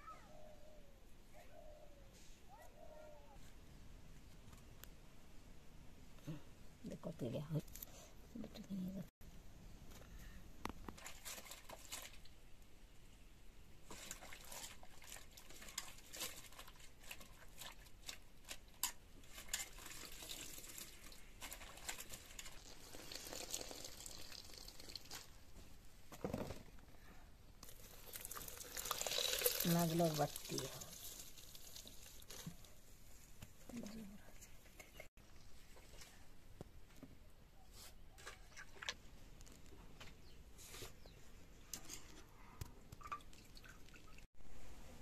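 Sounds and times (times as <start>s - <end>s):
background noise: 0.0s - 45.0s
water dripping into metal pot: 22.5s - 25.2s, 27.8s - 32.4s, 42.9s - 44.2s.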